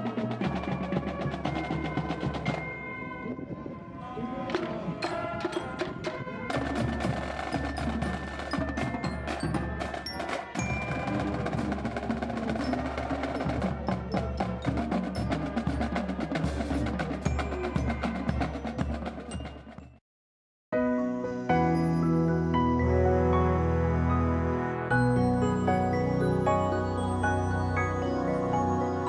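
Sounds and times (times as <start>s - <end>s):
marching band playing: 0.0s - 2.9s, 4.5s - 19.9s
ringing bell-like tones: 5.2s - 13.7s, 24.9s - 29.0s.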